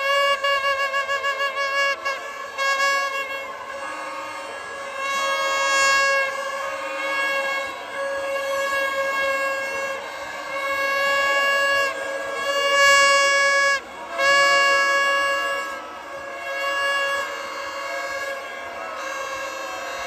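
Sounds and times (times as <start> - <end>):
horns sounding long blasts: 0.0 - 20.0.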